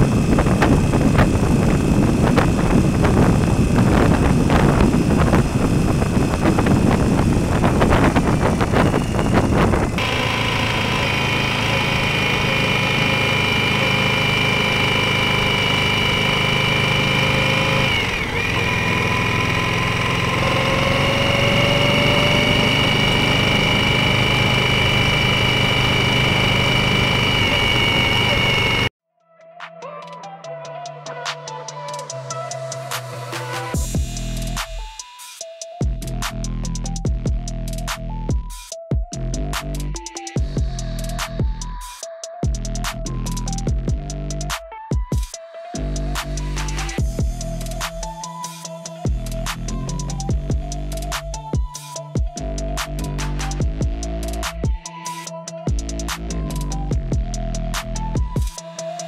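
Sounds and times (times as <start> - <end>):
wind buffeting microphone: 0.0 - 10.0
motorcycle engine running: 0.0 - 28.9, 33.7 - 34.9, 38.9 - 54.9, 55.6 - 59.0.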